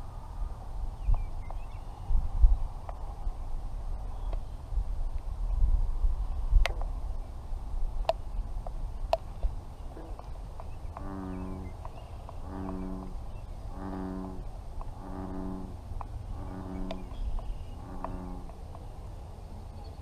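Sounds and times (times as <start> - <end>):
wind rumbling on microphone: 0.0 - 20.0
frog croaking: 9.9 - 11.8, 12.4 - 18.6.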